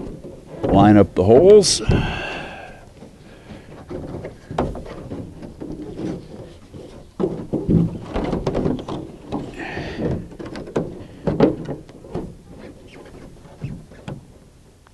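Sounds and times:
hollow plastic knocking and scraping: 3.0s - 14.3s.

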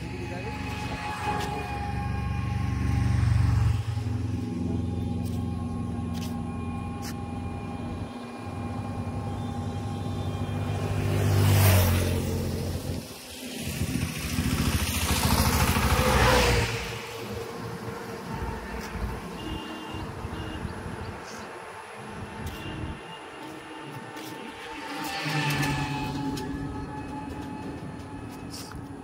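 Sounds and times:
vehicle engine running: 0.0s - 29.0s
vehicles passing: 0.0s - 29.0s.

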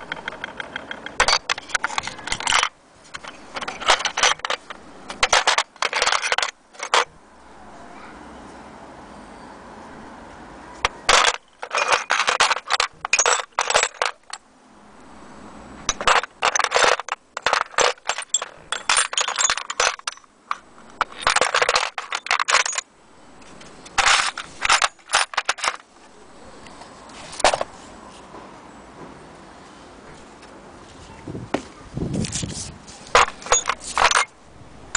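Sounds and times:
metal tools clinking in a tray: 0.0s - 7.1s, 11.1s - 14.4s, 15.9s - 22.8s, 23.9s - 25.8s, 33.1s - 34.3s.

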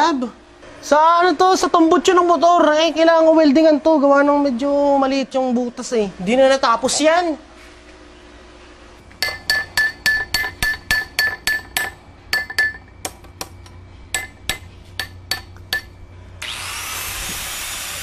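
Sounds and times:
steady loud hiss: 8.6s - 18.0s
hammer striking metal: 9.2s - 16.0s.

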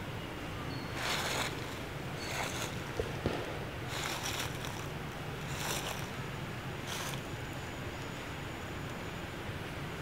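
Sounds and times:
foliage rustling: 0.8s - 7.6s.

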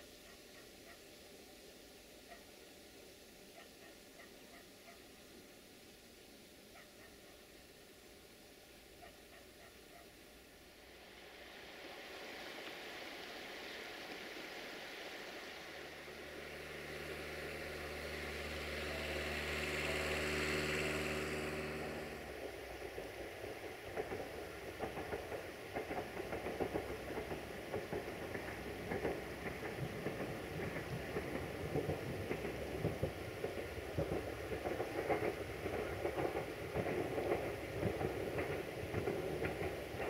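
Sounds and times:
rough crackly train engine: 0.0s - 40.0s
train engine droning hum: 15.0s - 40.0s.

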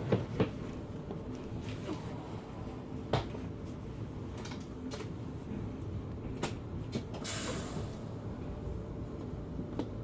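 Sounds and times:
train carriage rumbling: 0.0s - 10.0s.

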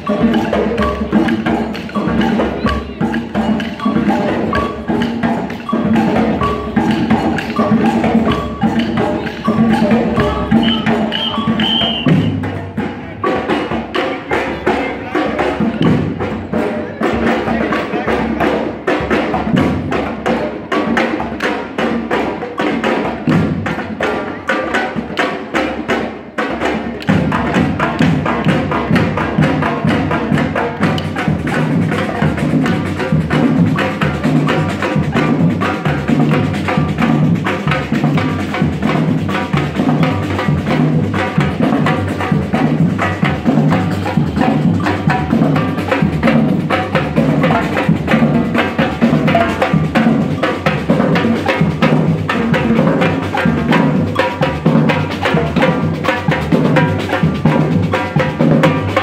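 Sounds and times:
light percussion: 0.0s - 59.0s
snare drums: 0.0s - 59.0s.

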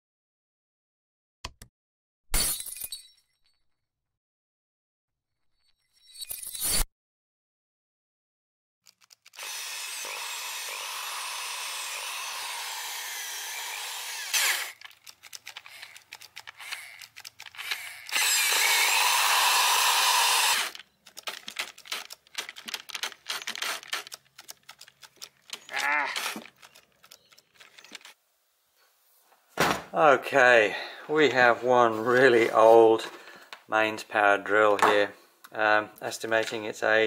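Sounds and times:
drill motor sputtering and crackling: 9.3s - 28.2s
hammer drill running: 9.4s - 14.9s, 15.6s - 22.0s.

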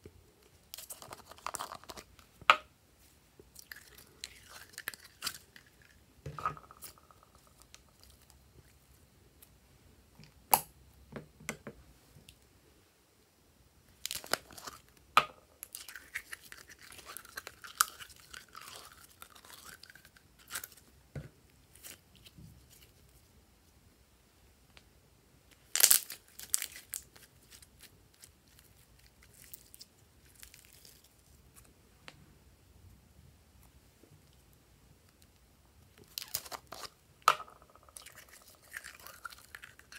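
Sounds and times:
slime crackling and popping: 25.6s - 27.7s.

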